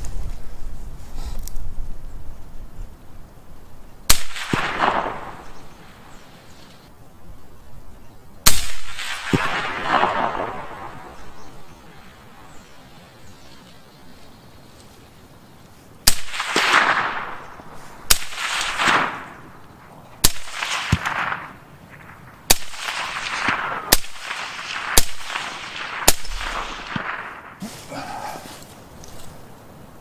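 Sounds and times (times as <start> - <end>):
suppressed rifle shots: 4.1 - 6.2, 8.5 - 12.0, 16.0 - 27.6.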